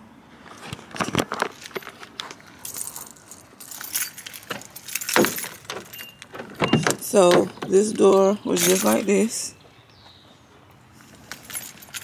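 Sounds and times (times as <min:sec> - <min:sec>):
keys jangling: 0:02.6 - 0:09.3, 0:11.0 - 0:12.0.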